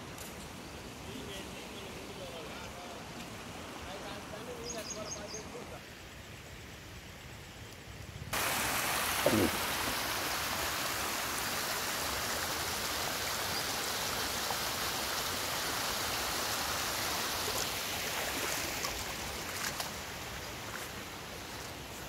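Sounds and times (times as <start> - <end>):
water rushing over stones: 8.4 - 22.0.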